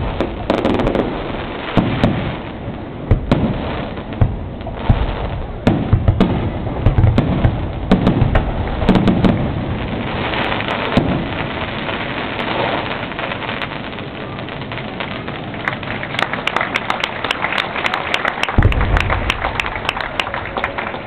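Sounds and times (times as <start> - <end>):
firework shells booming: 0.0 - 12.8, 18.6 - 21.0
sharp firework cracks: 0.0 - 17.4, 18.4 - 21.0
fireworks crackling: 0.0 - 21.0.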